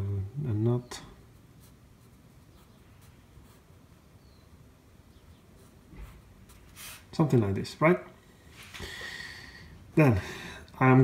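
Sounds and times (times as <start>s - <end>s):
pencil scratching on paper: 1.4s - 3.8s, 5.5s - 7.1s.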